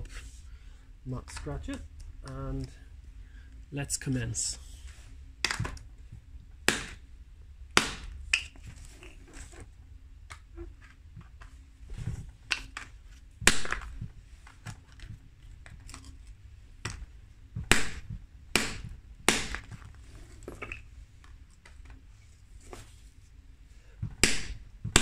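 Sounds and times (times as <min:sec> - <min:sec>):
sledgehammer blows on resin: 0:06.6 - 0:07.0, 0:07.7 - 0:08.2, 0:17.6 - 0:19.8, 0:24.0 - 0:25.0.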